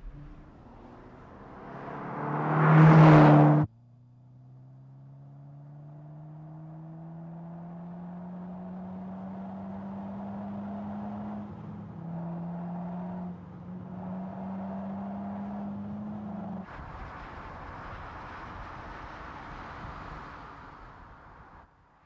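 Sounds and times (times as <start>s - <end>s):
steady rushing noise: 0.0s - 1.5s
car engine and exhaust droning: 0.0s - 21.4s.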